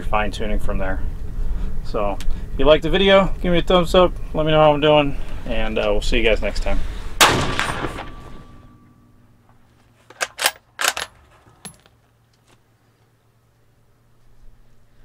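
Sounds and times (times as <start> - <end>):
loud rifle shot: 7.2 - 8.7
rifle bolt metallic clicks: 10.1 - 11.9.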